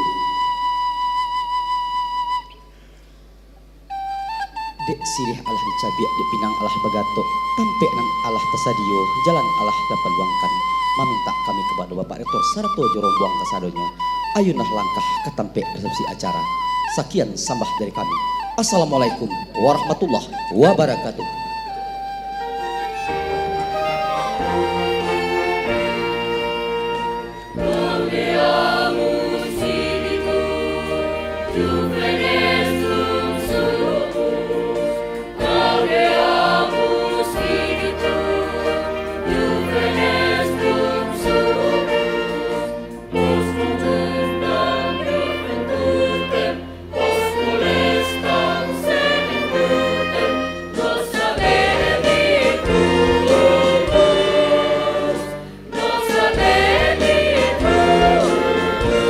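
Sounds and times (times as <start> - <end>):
orchestral accompaniment: 3.9 - 15.0, 18.8 - 59.0
choir singing: 22.4 - 59.0.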